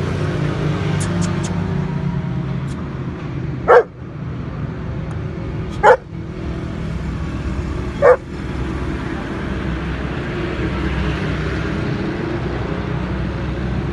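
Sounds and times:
dog barking: 0:03.7 - 0:03.9, 0:05.8 - 0:06.1, 0:08.0 - 0:08.2.

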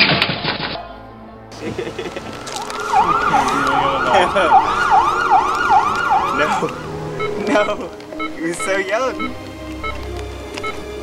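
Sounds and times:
siren yelping: 0:02.6 - 0:10.0.

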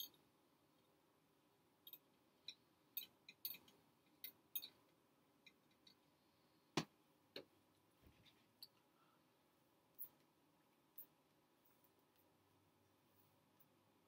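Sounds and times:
faint irregular clicks: 0:01.8 - 0:09.0.

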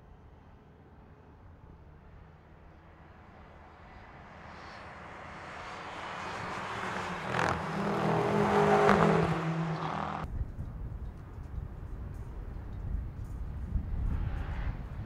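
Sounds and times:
car engines passing at speed: 0:02.8 - 0:10.3, 0:12.2 - 0:15.0.

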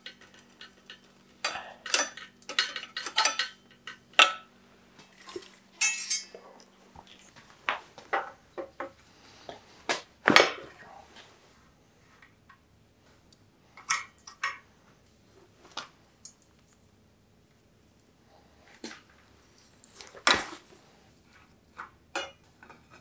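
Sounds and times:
metal bicycle parts clinking: 0:00.0 - 0:04.5, 0:05.8 - 0:06.4
ringing metallic clatter: 0:05.8 - 0:06.4.

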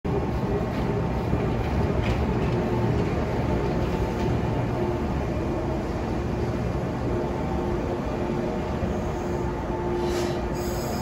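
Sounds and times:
electric train running: 0:00.1 - 0:11.0.

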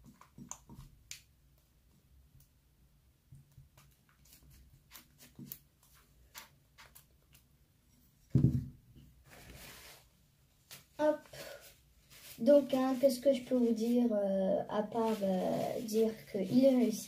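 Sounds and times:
faint clicks and small pops: 0:00.0 - 0:02.6
loud dull thump: 0:08.3 - 0:08.8.

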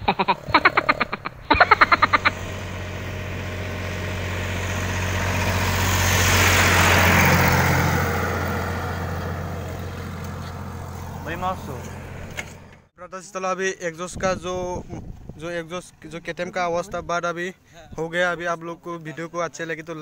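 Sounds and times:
vehicle passing by: 0:00.2 - 0:12.9.

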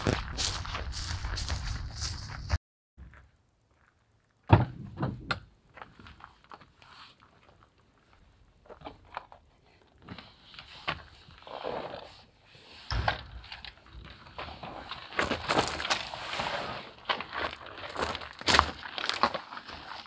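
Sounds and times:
sharp thunk: 0:12.9 - 0:13.6.

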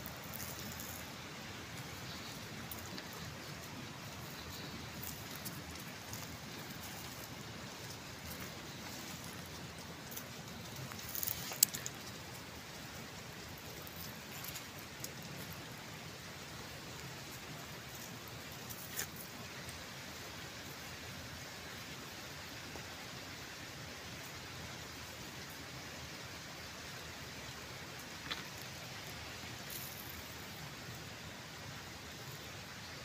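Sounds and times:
light clicks and rustles: 0:00.0 - 0:15.8, 0:16.9 - 0:19.8, 0:28.0 - 0:30.7
steady outdoor hiss: 0:00.0 - 0:33.0.

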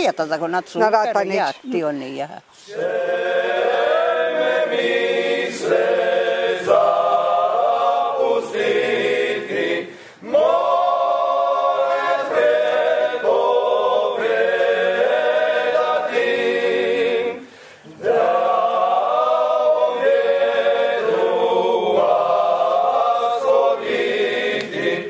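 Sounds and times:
choir singing: 0:02.6 - 0:25.0.

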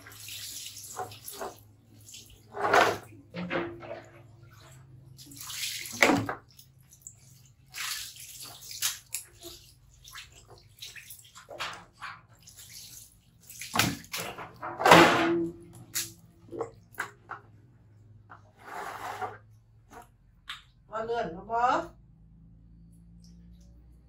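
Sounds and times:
water poured and splashing on tiles: 0:00.0 - 0:17.4.

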